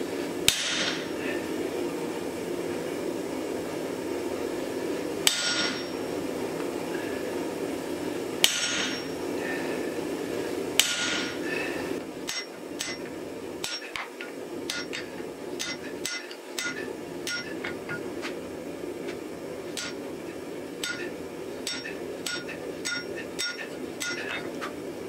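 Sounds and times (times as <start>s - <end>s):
hammer striking chisel ringing: 5.3s - 5.9s, 12.3s - 13.0s, 14.7s - 18.0s, 19.8s - 20.0s, 20.8s - 24.5s.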